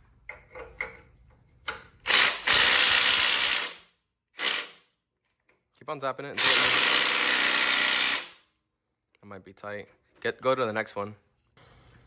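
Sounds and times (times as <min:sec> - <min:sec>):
impact wrench hammering: 0:06.4 - 0:08.4.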